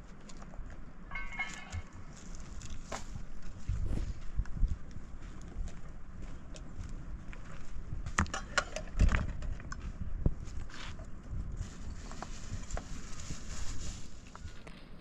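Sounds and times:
footsteps on rough ground: 0.0s - 15.0s
sharp knocks and scrapes: 1.1s - 3.1s.

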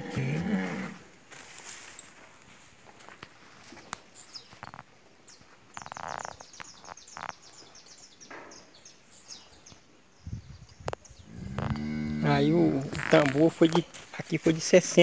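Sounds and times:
small birds chirping: 3.7s - 14.4s.

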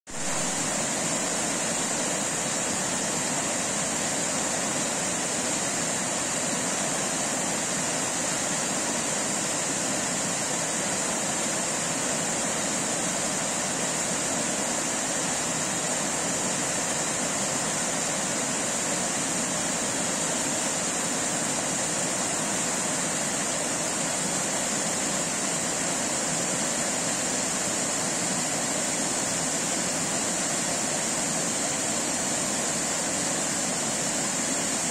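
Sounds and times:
water rushing over rocks: 0.1s - 34.9s.

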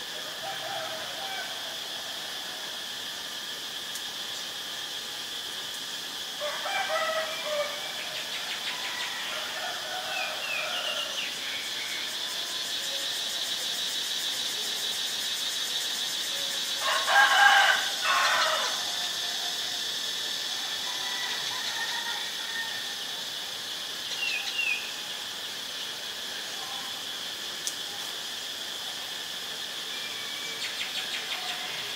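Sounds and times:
high insect drone: 0.0s - 31.9s
rooster crowing: 0.2s - 2.1s, 6.4s - 11.4s, 16.6s - 19.6s, 20.5s - 23.2s.

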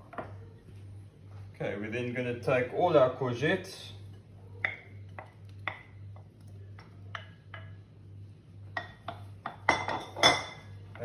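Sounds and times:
low steady hum: 0.0s - 11.0s
utensil clinking against bowls: 8.7s - 11.0s.

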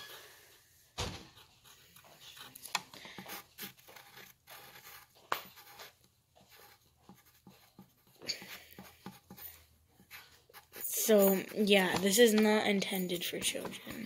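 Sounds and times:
pencil scratching on paper: 1.2s - 14.0s.

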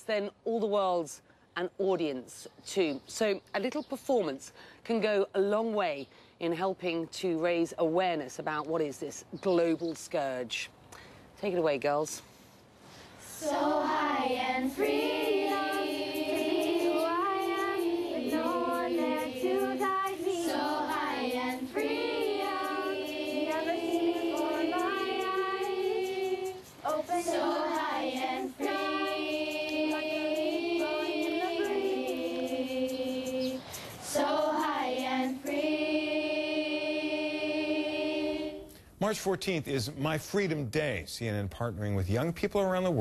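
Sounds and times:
girls singing together: 13.3s - 38.7s.

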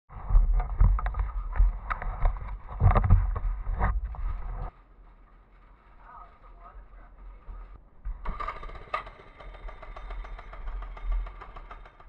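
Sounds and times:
camera handling rubbing and knocks: 0.6s - 4.7s.

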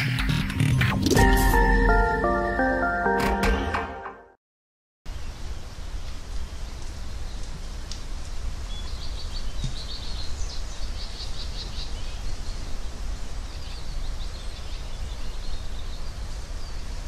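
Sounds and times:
small birds chirping: 8.6s - 17.0s.

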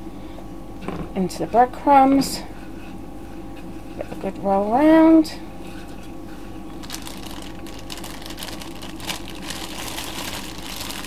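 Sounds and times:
steady low hum: 0.0s - 11.0s
breadcrumbs crunching and scratching: 5.7s - 11.0s.

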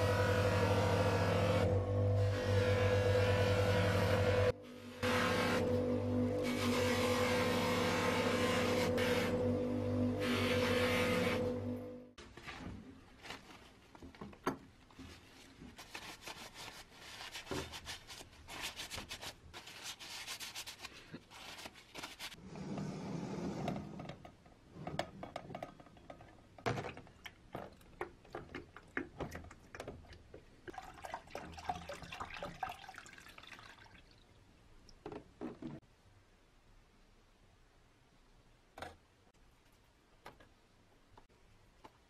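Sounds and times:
liquid pouring and splashing: 26.7s - 35.0s.

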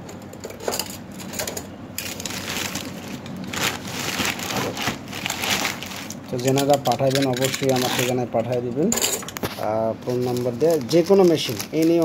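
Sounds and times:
plastic bag rustling: 2.0s - 8.4s, 9.4s - 12.0s.

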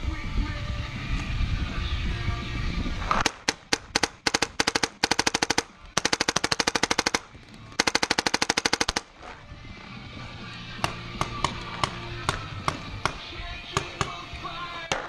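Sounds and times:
paintball marker firing: 3.1s - 9.4s, 10.8s - 15.0s.

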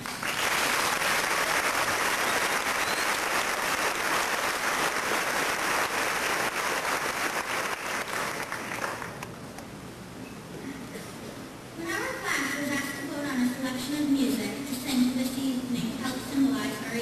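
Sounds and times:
audience applause: 0.0s - 9.3s.

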